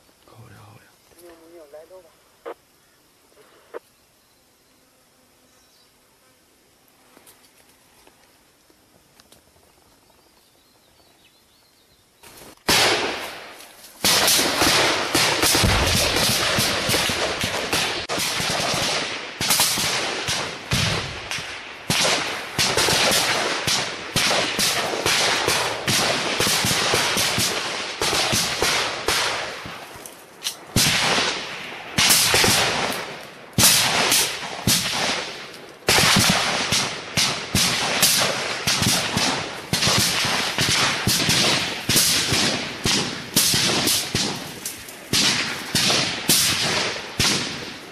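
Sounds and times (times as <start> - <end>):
rifle shots: 12.7 - 29.8, 30.7 - 47.9
automatic gunfire bursts: 14.0 - 21.0, 21.9 - 29.5, 33.6 - 44.5.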